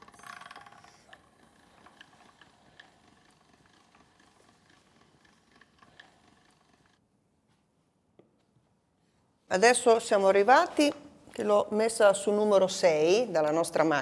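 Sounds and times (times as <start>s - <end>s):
pasta machine rattle: 0.0s - 7.0s.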